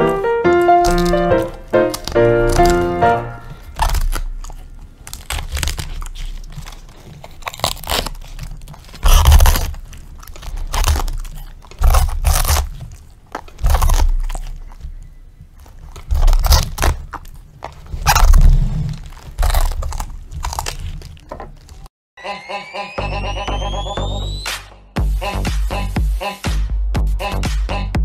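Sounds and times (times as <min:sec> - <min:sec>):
piano music: 0:00.0 - 0:03.9
dog crunching cabbage: 0:00.0 - 0:21.9.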